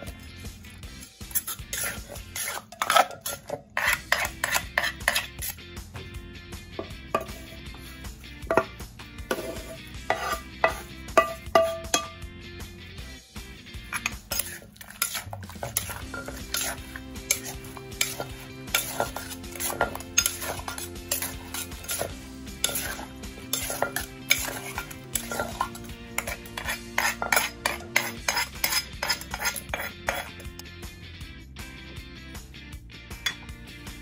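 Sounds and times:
metal spoon scraping and clinking: 0.8s - 5.6s, 6.8s - 7.8s, 8.5s - 12.2s, 13.8s - 30.6s, 33.2s - 33.5s
wooden pestle knocking in mortar: 8.4s - 9.4s, 10.1s - 12.2s.

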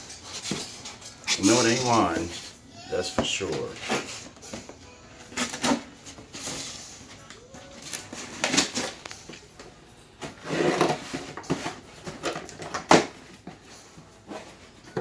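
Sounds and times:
cardboard scraping and rustling: 0.0s - 4.4s, 10.2s - 15.0s.

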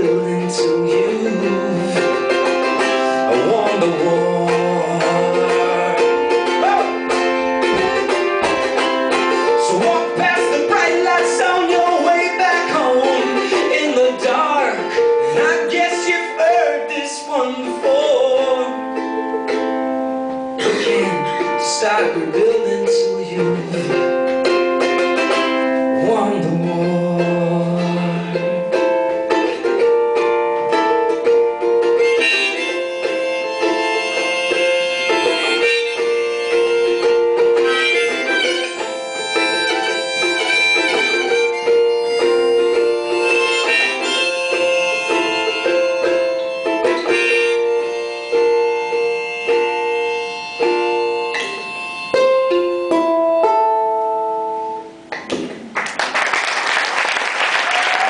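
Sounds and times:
harmonica playing: 0.0s - 16.4s, 27.7s - 53.6s
ukulele strumming: 0.0s - 58.0s.

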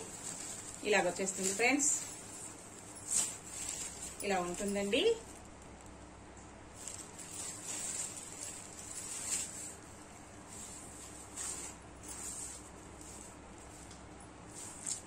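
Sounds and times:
silk cloth rustling: 0.0s - 5.5s, 6.8s - 15.0s.

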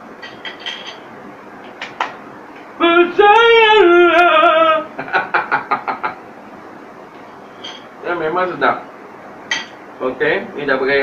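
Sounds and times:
man singing high wordless phrase: 2.8s - 4.9s.

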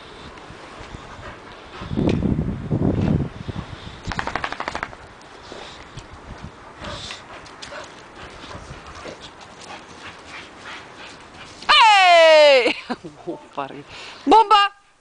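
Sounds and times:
dog panting hard: 0.9s - 2.0s, 6.7s - 11.6s
dogs running and scuffling: 4.1s - 11.7s.

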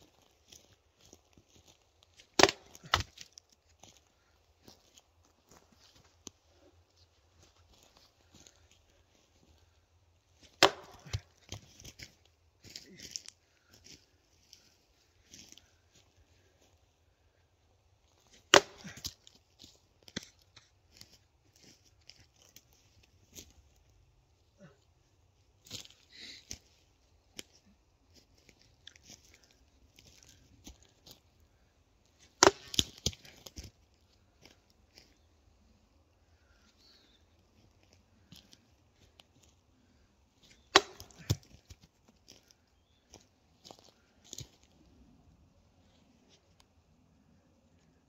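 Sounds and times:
wood crunching and crackling: 0.0s - 16.7s, 18.1s - 24.7s, 25.6s - 35.4s, 37.4s - 44.9s
machete chopping wood: 2.4s - 3.3s, 10.6s - 11.3s, 18.5s - 19.2s, 32.4s - 33.2s, 40.6s - 41.6s.

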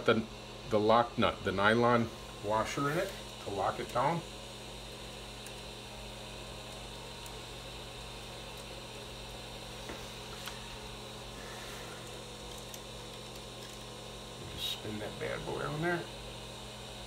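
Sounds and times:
electrical mains hum: 0.0s - 17.0s
fan-like room noise: 0.0s - 17.0s.

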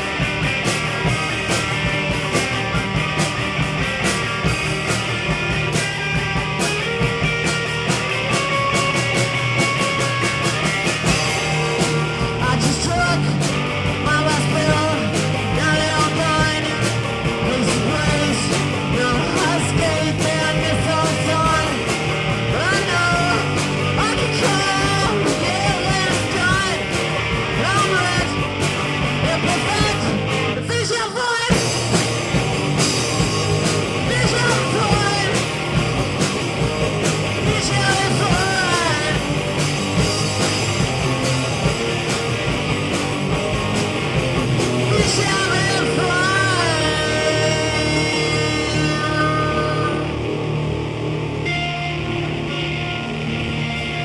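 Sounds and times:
drum kit with cymbals: 0.0s - 50.7s
electric guitar: 0.0s - 54.0s
person singing: 12.4s - 21.9s, 22.5s - 26.9s, 27.6s - 28.5s, 29.2s - 31.7s, 33.9s - 35.5s, 37.4s - 39.3s, 44.8s - 50.3s.

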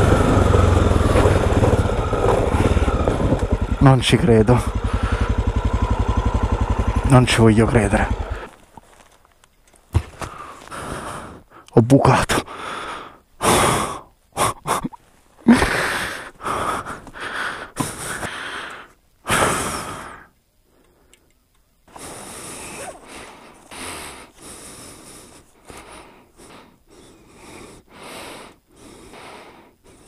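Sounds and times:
man breathing heavily and sighing: 4.7s - 5.5s, 10.0s - 21.3s, 21.9s - 30.0s
jacket and backpack rustling: 8.5s - 10.8s.

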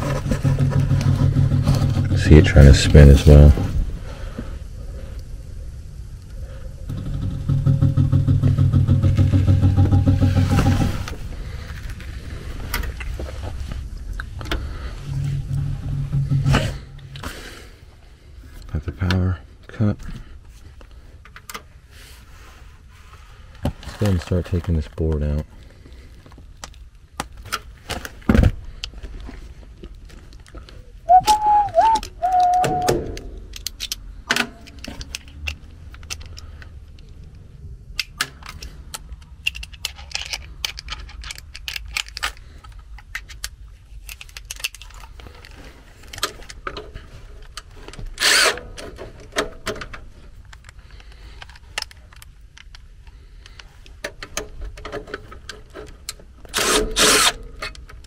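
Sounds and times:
brief wavering squeak: 31.1s - 33.1s
plastic connector clicks and rattles: 31.9s - 37.4s, 38.0s - 45.5s, 48.8s - 56.3s.

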